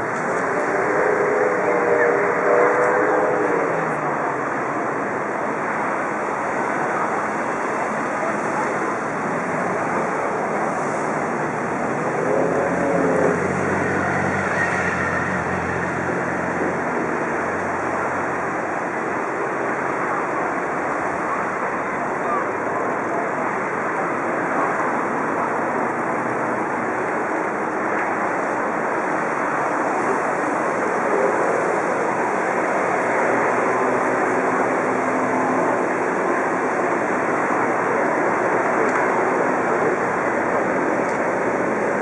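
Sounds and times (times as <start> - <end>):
motor boats rushing on river: 0.0 - 42.0
faint voices calling out: 12.0 - 16.9.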